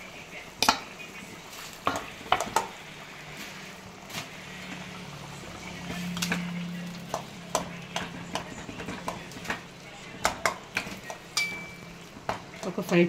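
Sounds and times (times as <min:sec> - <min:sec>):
low steady hum: 0:00.0 - 0:12.8
steel spoon scraping and clinking: 0:11.3 - 0:12.0.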